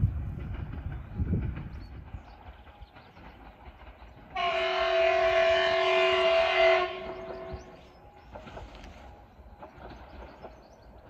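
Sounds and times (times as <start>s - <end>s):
train horn blast: 4.4s - 7.8s.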